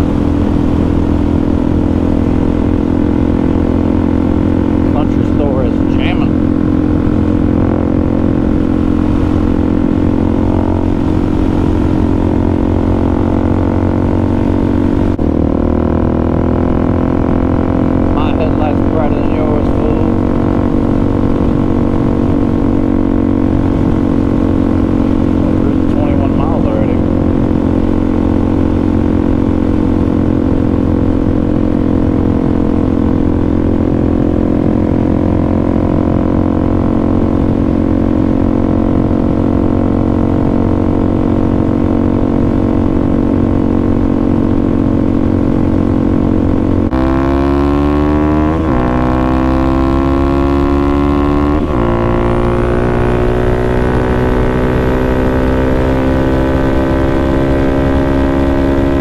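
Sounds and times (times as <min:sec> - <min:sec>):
gear changes: 0:00.0 - 0:34.7
motorcycle engine running: 0:00.0 - 0:59.0.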